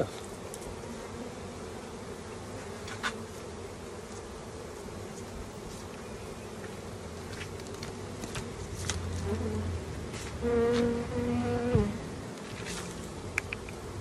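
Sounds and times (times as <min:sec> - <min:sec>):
honeybees buzzing: 0:00.0 - 0:14.0
sharp click: 0:13.3 - 0:13.8.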